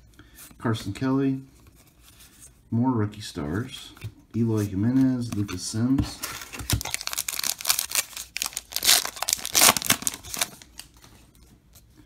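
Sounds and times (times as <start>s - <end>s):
wrapper crinkling and tearing: 6.2s - 11.0s.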